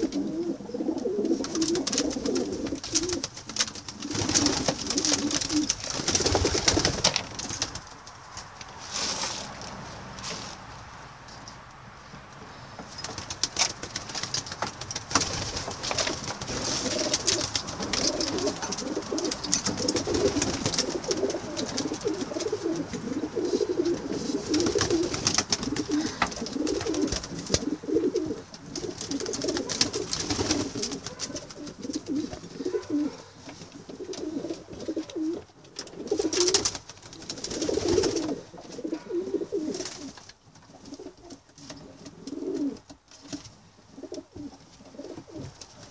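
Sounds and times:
pigeons cooing: 0:00.0 - 0:07.1, 0:15.3 - 0:42.9, 0:43.9 - 0:45.6
rustling and small clicks: 0:01.0 - 0:10.6, 0:11.3 - 0:23.1.

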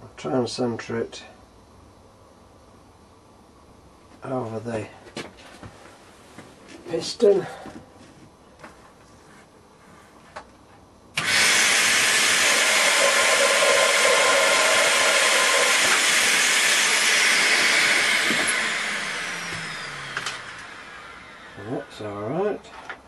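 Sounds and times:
vacuum cleaner running: 0:11.2 - 0:22.4
rush of air through hose: 0:11.4 - 0:17.7.

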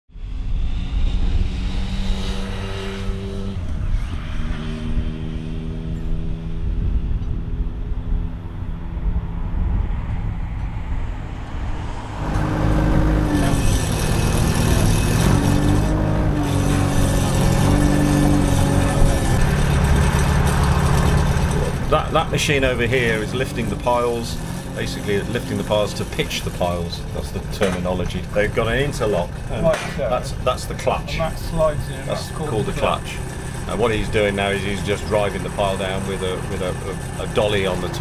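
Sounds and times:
diesel engines running: 0:00.1 - 0:38.0.

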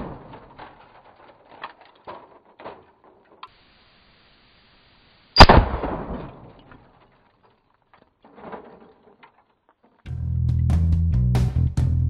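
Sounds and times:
rifle shot: 0:05.4 - 0:06.6.

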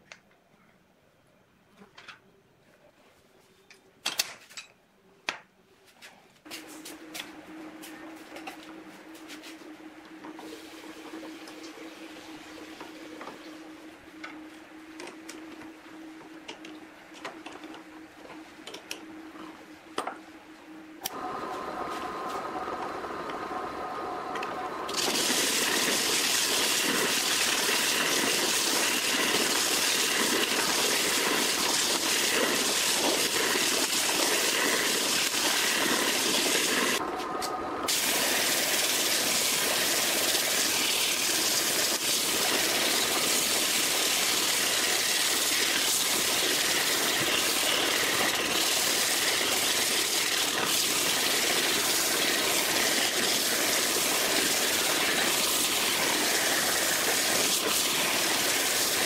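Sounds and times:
drill press motor: 0:21.0 - 0:59.0.

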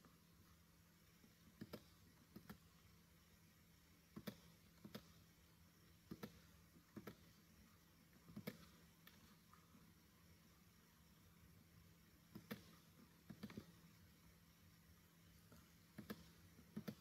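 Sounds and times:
low steady hum: 0:00.0 - 0:17.0
computer mouse clicks: 0:01.4 - 0:02.8, 0:04.1 - 0:05.3, 0:05.9 - 0:07.5, 0:08.2 - 0:09.4, 0:12.2 - 0:14.0, 0:15.5 - 0:17.0.

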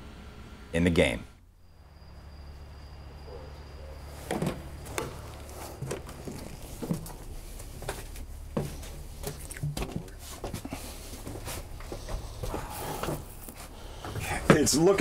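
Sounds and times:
steady low hum: 0:00.0 - 0:15.0
footsteps: 0:04.0 - 0:15.0.

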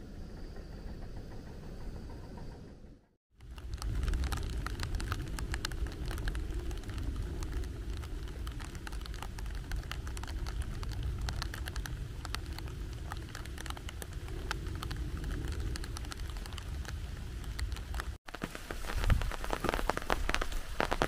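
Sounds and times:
raindrops pattering: 0:03.3 - 0:21.0
wind buffeting microphone: 0:03.4 - 0:18.2.

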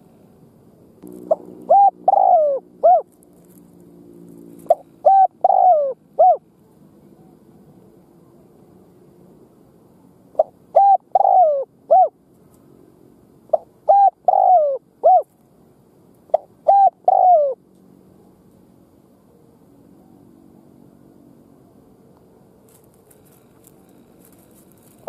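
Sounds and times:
dove cooing: 0:01.0 - 0:03.6, 0:04.3 - 0:06.5, 0:10.3 - 0:12.2, 0:13.5 - 0:15.3, 0:16.3 - 0:17.6.

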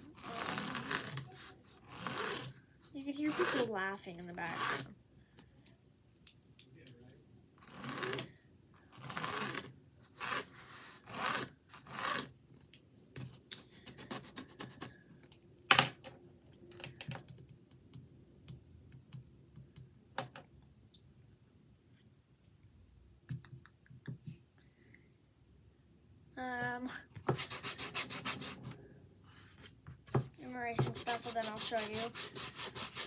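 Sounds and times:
scratchy strokes on canvas: 0:00.1 - 0:04.9, 0:08.9 - 0:12.3, 0:27.3 - 0:33.0.

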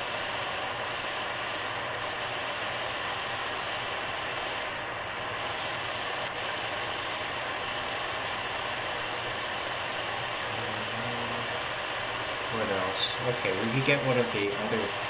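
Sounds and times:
radio static and hiss: 0:00.0 - 0:15.0.

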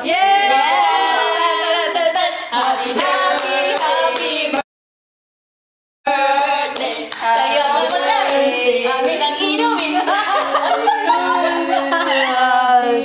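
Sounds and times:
young women singing together: 0:00.0 - 0:04.6, 0:06.1 - 0:13.0.

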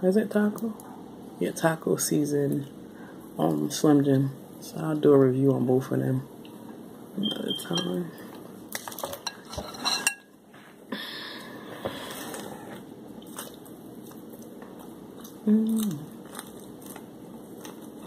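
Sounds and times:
soft chewing: 0:11.8 - 0:18.0
person humming: 0:15.4 - 0:16.2.

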